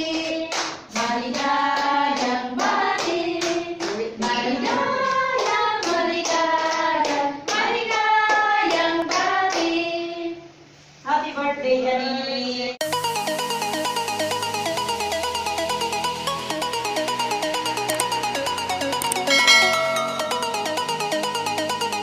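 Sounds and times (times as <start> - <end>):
people clapping on the beat: 0.0 - 9.8
group singing: 0.0 - 10.4.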